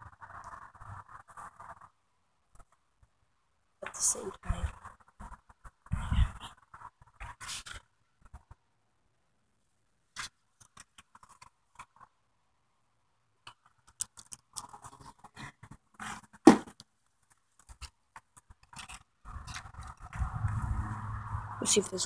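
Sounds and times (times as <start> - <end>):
loud thump: 16.4 - 16.7.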